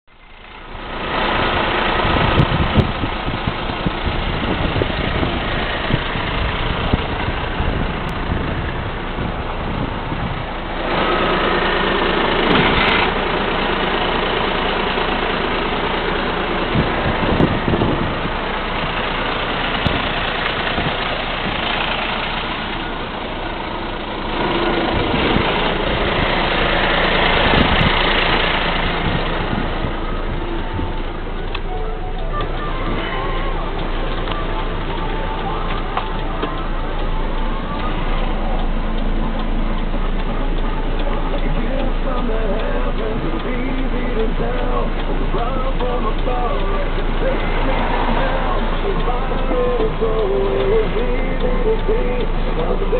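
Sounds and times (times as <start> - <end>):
diesel truck engine idling: 0.0 - 52.9.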